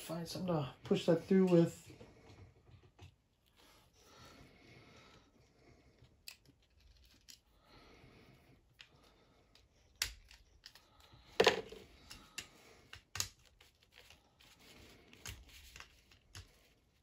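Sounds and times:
plastic toy parts clicking: 0:09.5 - 0:14.1.

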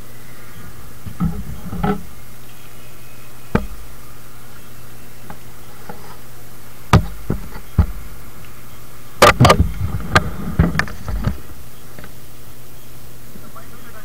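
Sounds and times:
steady low hum: 0:00.0 - 0:14.0
sharp knocks: 0:06.9 - 0:08.0, 0:09.2 - 0:11.4.

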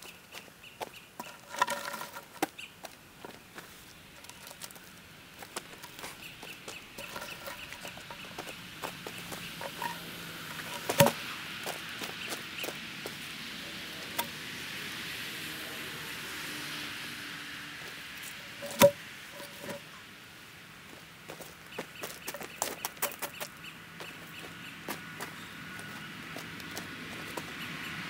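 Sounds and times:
bird calling: 0:00.0 - 0:04.8, 0:05.4 - 0:12.8
boots crunching on gravel: 0:00.4 - 0:13.2
logs knocking: 0:01.2 - 0:02.5, 0:07.0 - 0:11.2, 0:18.5 - 0:19.8.

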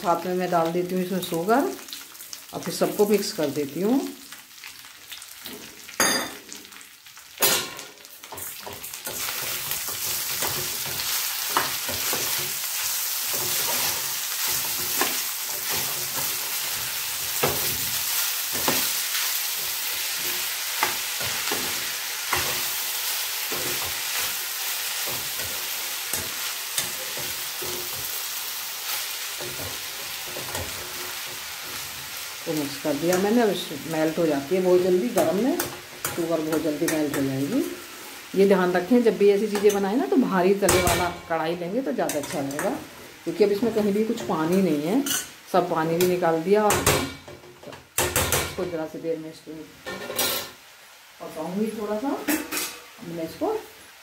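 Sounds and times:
sizzling: 0:00.0 - 0:54.0
spoon scraping a pan: 0:08.3 - 0:28.2, 0:28.9 - 0:32.3, 0:44.2 - 0:45.4.

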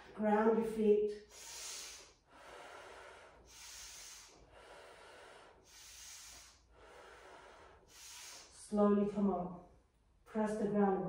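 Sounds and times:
woman breathing slowly: 0:00.0 - 0:00.2, 0:01.1 - 0:08.9.

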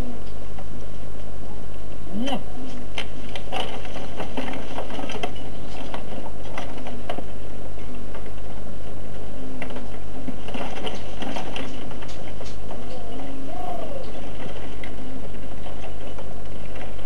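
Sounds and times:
steady low hum: 0:00.0 - 0:17.0
wooden cart rattling: 0:02.7 - 0:17.0.

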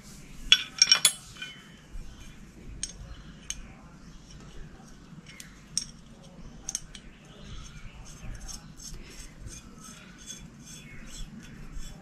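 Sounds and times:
small metal parts clinking: 0:00.5 - 0:01.6, 0:02.8 - 0:03.6, 0:05.2 - 0:07.1.

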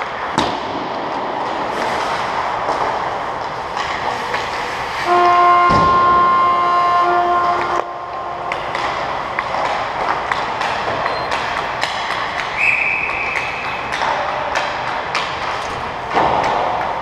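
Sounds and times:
sticks and pucks clacking: 0:00.0 - 0:06.0, 0:07.2 - 0:17.0
skates hissing over ice: 0:01.5 - 0:05.3.

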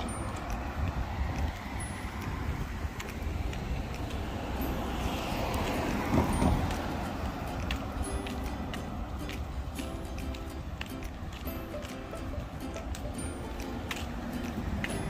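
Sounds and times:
car passing close by: 0:00.0 - 0:09.2
street traffic: 0:00.0 - 0:15.0.

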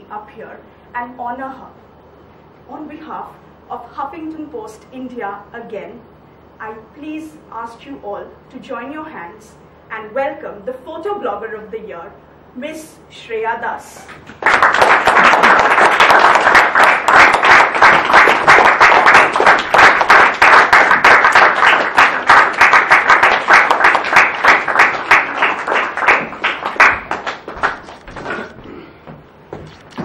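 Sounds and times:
audience applauding: 0:14.3 - 0:28.4.

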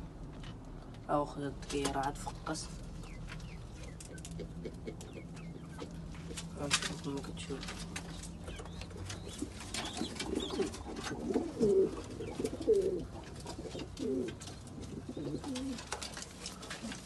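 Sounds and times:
pigeons cooing: 0:03.0 - 0:06.5, 0:08.1 - 0:17.0.

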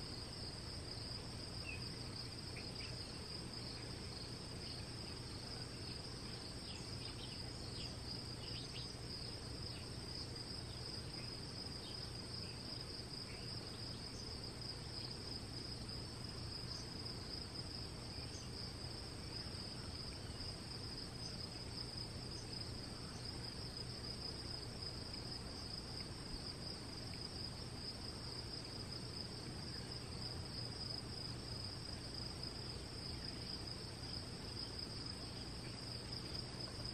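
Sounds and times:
insects trilling: 0:00.0 - 0:36.9.

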